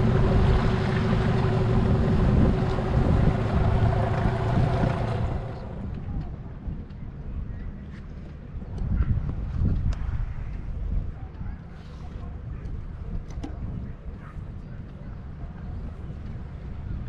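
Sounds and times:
rushing water: 0.0 - 5.9
boat motor running: 0.0 - 6.4
rushing wind: 0.0 - 17.0.

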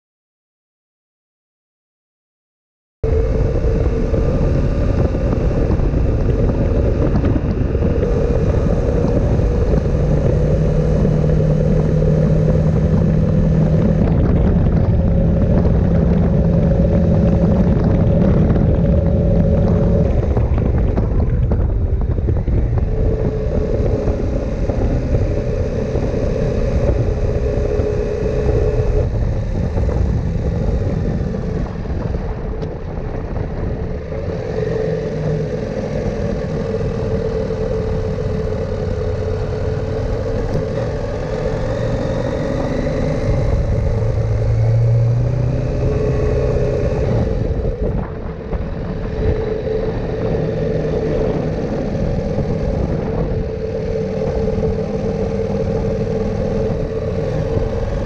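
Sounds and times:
motorcycle engine running: 3.0 - 58.0
wind rushing over microphone: 3.0 - 58.0.

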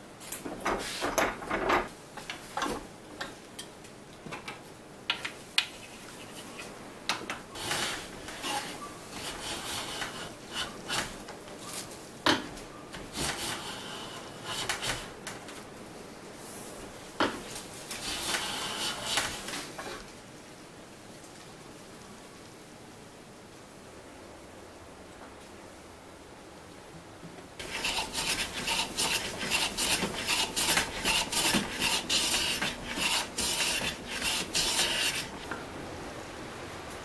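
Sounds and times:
wooden knocks and clatter: 0.4 - 2.9
hand plane shaving wood: 7.6 - 11.2, 13.1 - 15.1, 18.0 - 19.5, 27.6 - 35.6.

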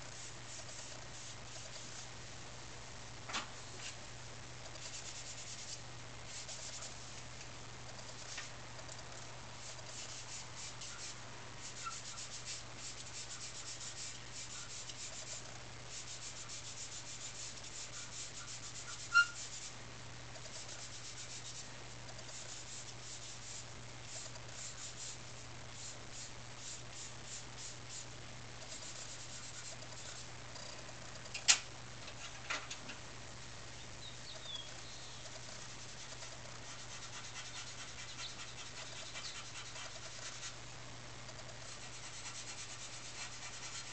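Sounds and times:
charcoal pencil scratching on paper: 4.7 - 7.0, 9.6 - 19.8, 20.4 - 25.2, 25.8 - 30.3, 35.2 - 40.6, 41.5 - 43.9.

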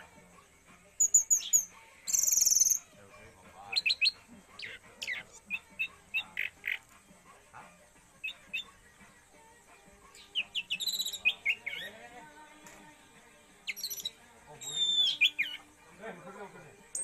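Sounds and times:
thrush singing: 1.0 - 2.8, 8.2 - 16.0.

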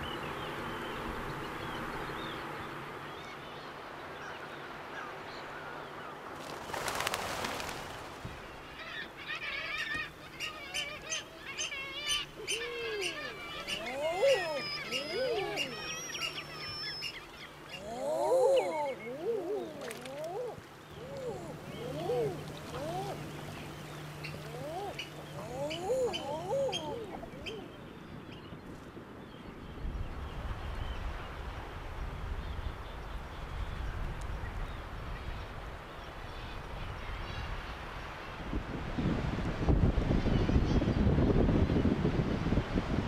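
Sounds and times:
birds chattering: 8.5 - 28.1
eider ducks cooing: 9.4 - 16.9, 17.7 - 23.5, 24.2 - 27.7.

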